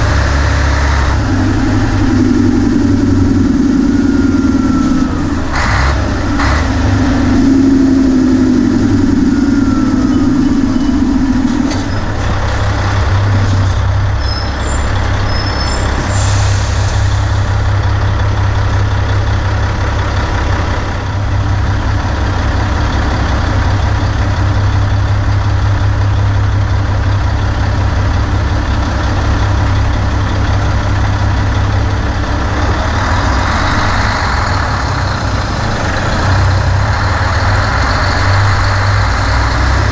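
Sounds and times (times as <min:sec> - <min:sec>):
higher droning note: 0:00.0 - 0:12.6
diesel engine deep drone: 0:00.0 - 0:39.9.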